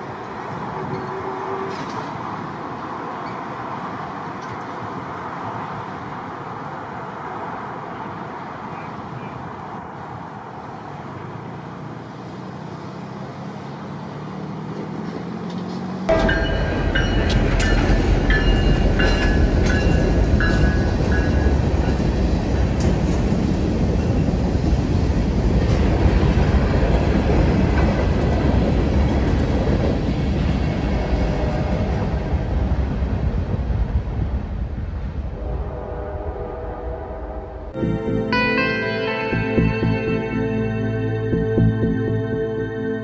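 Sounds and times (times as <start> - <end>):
freight cars rolling by: 0.0 - 35.3
diesel locomotive rumble: 14.8 - 43.0
train wheel clacks: 16.1 - 24.9.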